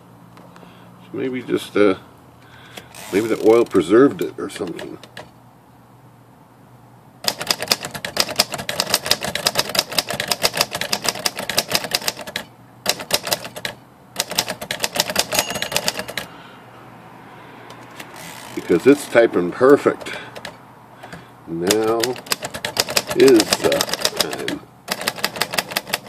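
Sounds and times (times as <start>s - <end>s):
typewriter keystrokes: 7.2s - 16.3s, 19.6s - 26.0s.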